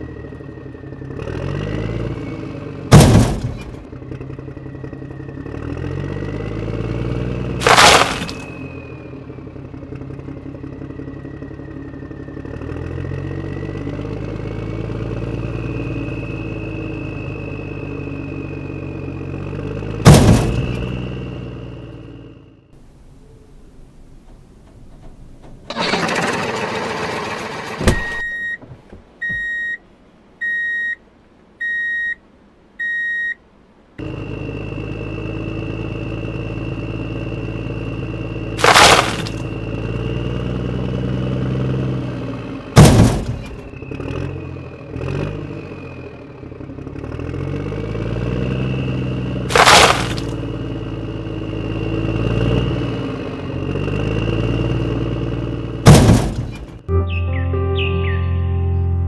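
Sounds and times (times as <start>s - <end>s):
bucket load crashing: 2.9s - 3.8s, 7.6s - 8.5s, 20.1s - 20.8s, 38.6s - 39.5s, 42.8s - 43.7s, 49.5s - 50.4s, 55.9s - 56.8s.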